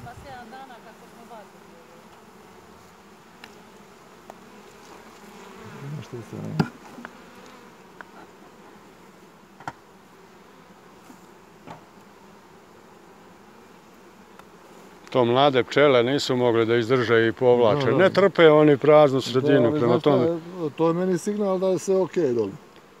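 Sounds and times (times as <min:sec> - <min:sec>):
honeybees buzzing: 0:00.0 - 0:23.0
clicks and knocks of hive tool: 0:02.1 - 0:02.3, 0:03.4 - 0:05.3, 0:06.4 - 0:08.3, 0:09.6 - 0:09.8, 0:11.0 - 0:12.1, 0:14.3 - 0:15.2.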